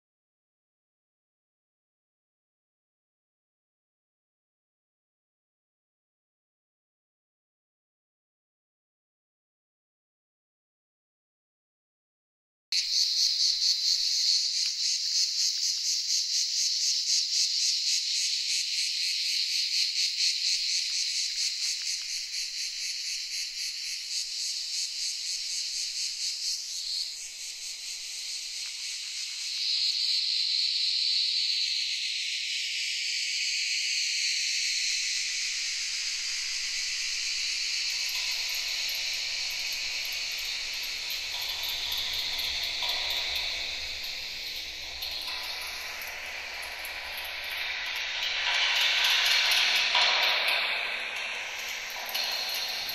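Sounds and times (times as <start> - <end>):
insect-like chirring: 12.8 - 52.9
low steady tones: 36.4 - 52.9.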